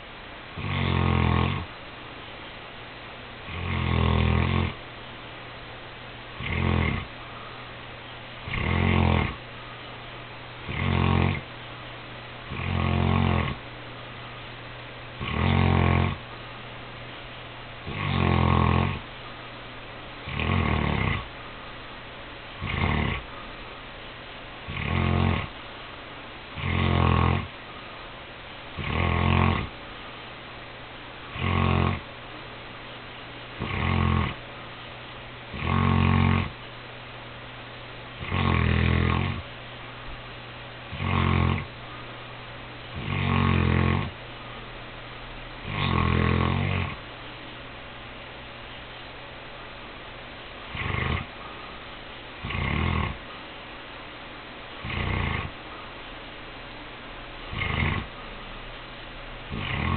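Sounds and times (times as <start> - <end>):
dog snoring: 0.6 - 1.7, 3.5 - 4.8, 6.4 - 7.2, 8.4 - 9.4, 10.6 - 11.5, 12.5 - 13.6, 15.2 - 16.2, 17.8 - 19.1, 20.2 - 21.3, 22.6 - 23.3, 24.7 - 25.6, 26.6 - 27.5, 28.8 - 29.7, 31.3 - 32.1, 33.6 - 34.4, 35.5 - 36.6, 38.2 - 39.5, 40.9 - 41.7, 42.9 - 44.2, 45.6 - 47.0, 50.7 - 51.5, 52.4 - 53.2, 54.8 - 55.6, 57.5 - 58.2, 59.5 - 59.9.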